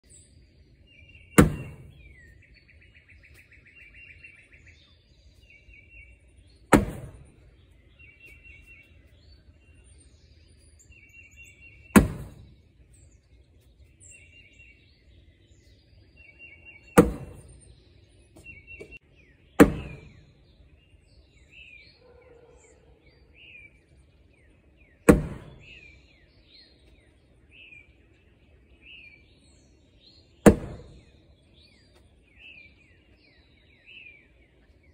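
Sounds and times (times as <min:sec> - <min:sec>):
birds chirping: 0:00.0 - 0:34.9
bags thudding on wooden board: 0:06.7 - 0:07.3.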